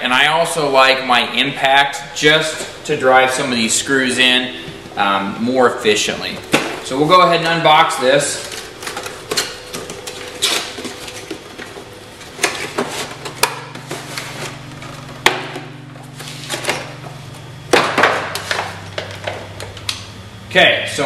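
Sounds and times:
packaging rustling and crinkling: 8.4 - 15.0.

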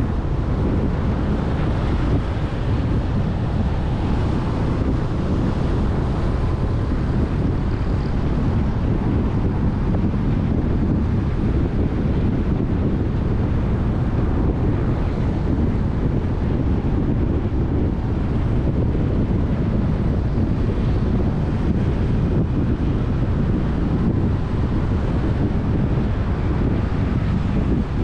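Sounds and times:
motorbike and car traffic: 0.0 - 28.0
wind buffeting microphone: 0.0 - 28.0.

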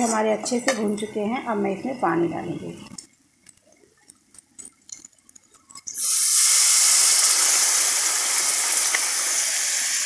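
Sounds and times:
oil sizzling: 4.6 - 10.0
water hissing in hot pan: 5.9 - 10.0.

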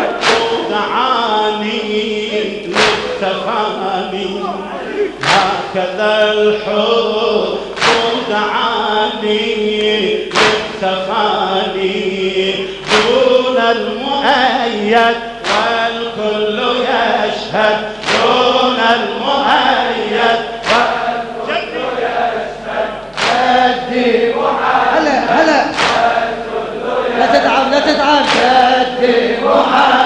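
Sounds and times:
chest striking beats: 0.0 - 0.8, 2.7 - 3.3
men chanting: 0.0 - 30.0.

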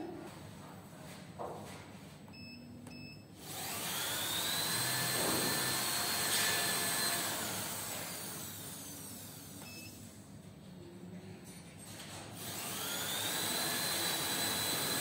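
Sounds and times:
cutting machine motor whine: 3.4 - 9.7, 12.4 - 15.0.

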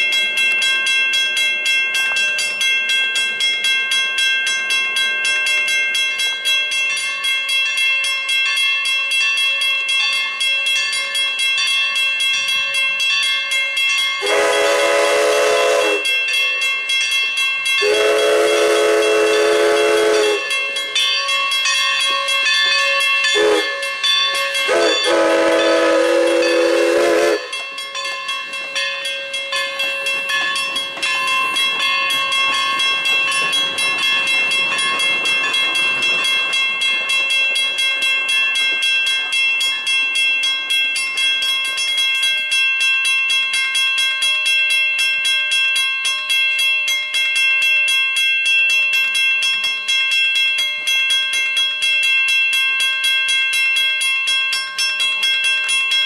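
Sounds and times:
locomotive bell ringing: 0.0 - 56.0
steam whistle blast: 14.2 - 16.1, 17.8 - 20.5, 23.4 - 27.5.

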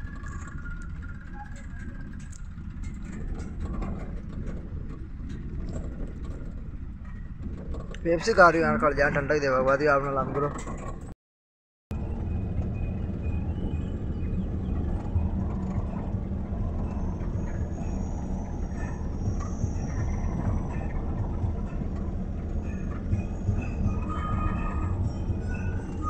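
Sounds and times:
tractor diesel engine running: 11.9 - 26.0
tyres rumbling on road: 11.9 - 26.0.

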